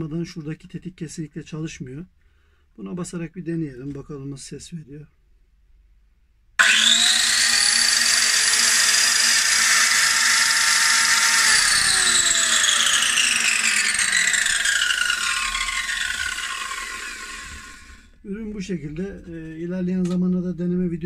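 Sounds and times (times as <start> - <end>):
circular saw whining: 6.6 - 19.7.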